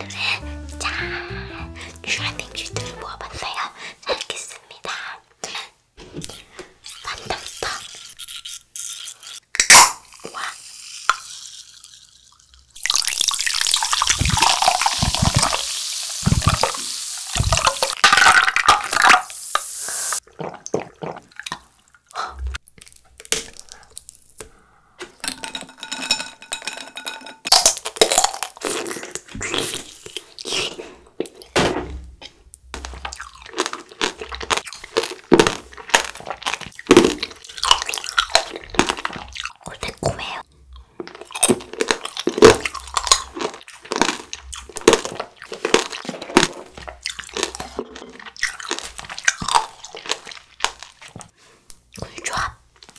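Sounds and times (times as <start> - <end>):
crunching and chewing hard candy: 20.2 - 24.7, 27.5 - 31.5, 32.8 - 52.9.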